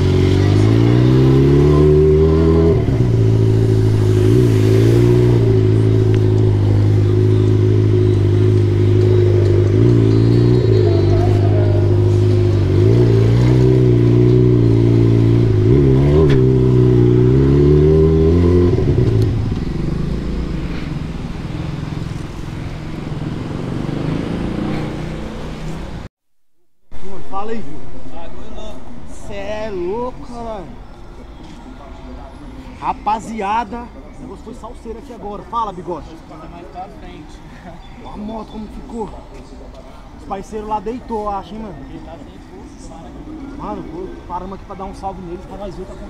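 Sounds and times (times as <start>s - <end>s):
motorcycle engine revving: 0.0s - 26.1s.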